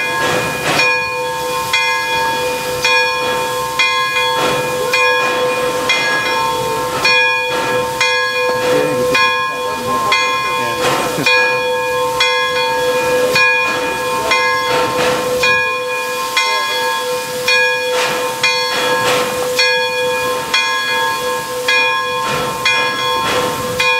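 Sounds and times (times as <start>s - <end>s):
steam locomotive hissing: 0.0s - 23.9s.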